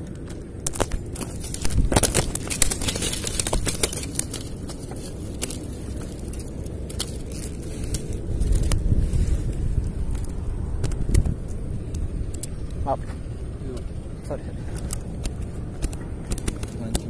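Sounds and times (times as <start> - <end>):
low rumble: 0.0 - 17.0.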